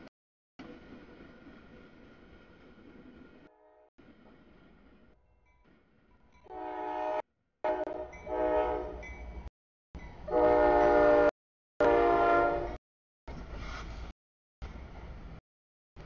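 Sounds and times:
locomotive horn blasts: 6.5 - 9.0, 10.3 - 12.8.

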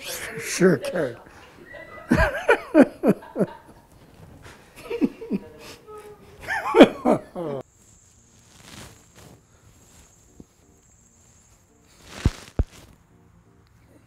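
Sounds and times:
person laughing: 0.6 - 3.8, 4.8 - 7.6.

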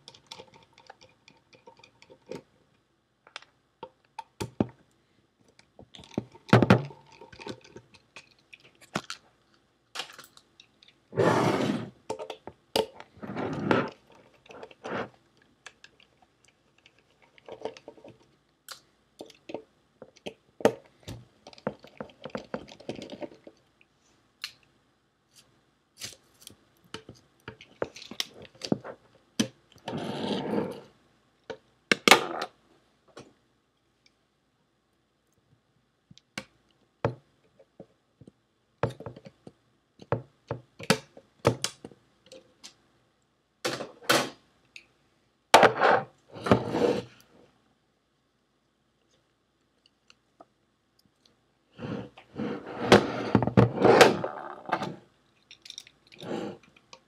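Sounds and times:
scraping and rubbing of parts: 51.9 - 56.9.

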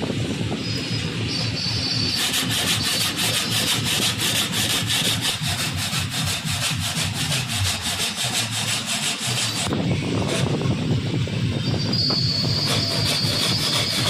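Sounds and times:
hand saw cutting wood: 1.6 - 9.7, 12.4 - 14.0.

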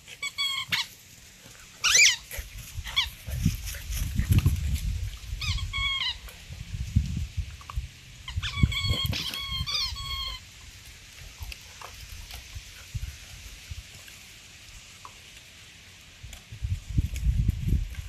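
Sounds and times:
puppies squealing and yelping: 0.0 - 1.0, 1.7 - 3.4, 5.3 - 6.3, 8.2 - 10.5.

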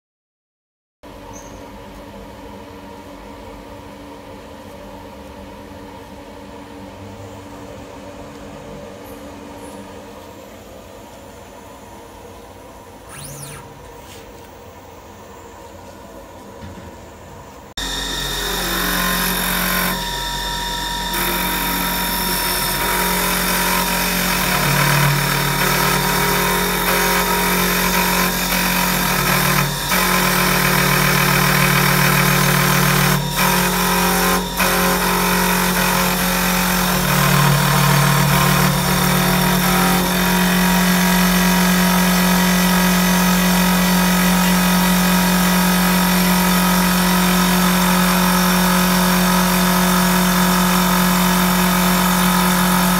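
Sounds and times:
cutter carving wood: 13.1 - 14.0, 17.8 - 52.9
lathe machine hum: 17.8 - 52.9.

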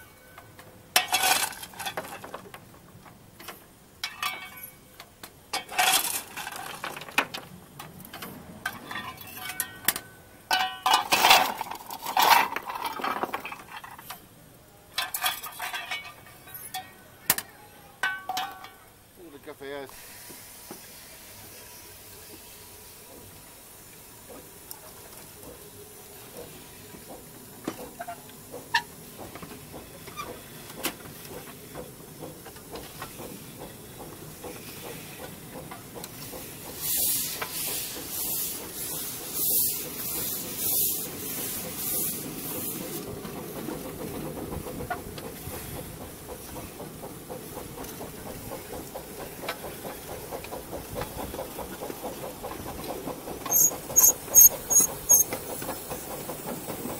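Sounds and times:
steam hissing: 19.7 - 56.9
locomotive running gear beat: 26.3 - 56.9.

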